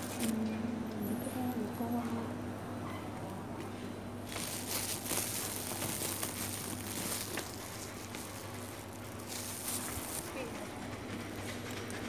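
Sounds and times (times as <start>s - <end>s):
rustling and crinkling: 0.0s - 0.4s, 3.6s - 12.0s.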